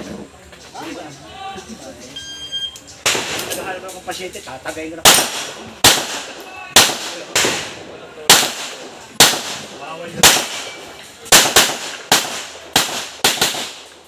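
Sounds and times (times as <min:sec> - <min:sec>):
handgun shots: 0:05.1 - 0:09.6.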